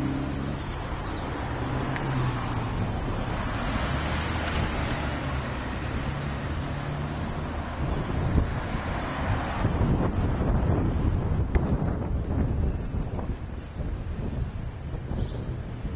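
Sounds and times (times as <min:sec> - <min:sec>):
road noise hiss: 0:00.0 - 0:11.7
vehicle engine hum: 0:00.0 - 0:15.9.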